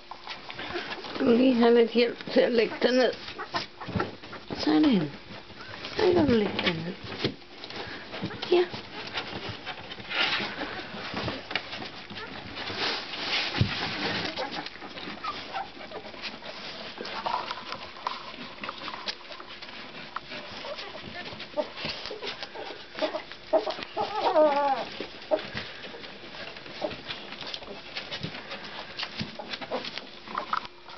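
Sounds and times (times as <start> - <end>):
puppies squeaking: 2.6 - 4.5, 14.0 - 17.0, 20.3 - 28.0
puppy whimpering: 9.2 - 12.6, 14.0 - 17.4, 19.2 - 28.5.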